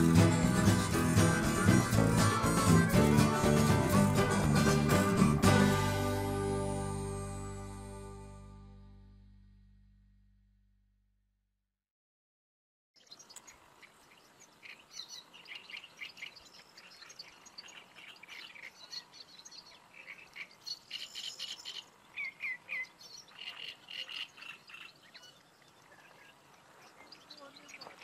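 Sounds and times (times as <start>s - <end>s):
small birds chirping and singing: 13.0s - 28.0s.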